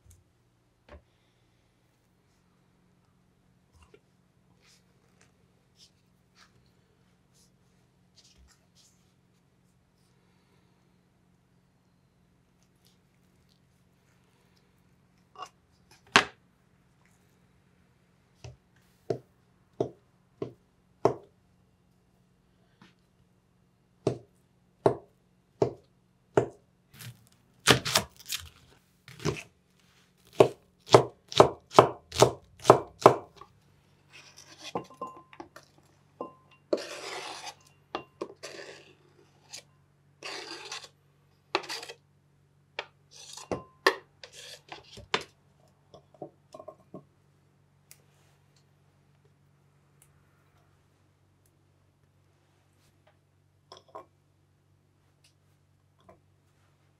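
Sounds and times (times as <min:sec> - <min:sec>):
knife chopping on wooden board: 0:19.8 - 0:21.2, 0:24.0 - 0:25.8, 0:26.4 - 0:28.5, 0:29.1 - 0:29.5, 0:30.2 - 0:33.3
knife scraping on board: 0:34.1 - 0:35.1, 0:36.7 - 0:42.0, 0:43.1 - 0:43.6, 0:44.2 - 0:45.2.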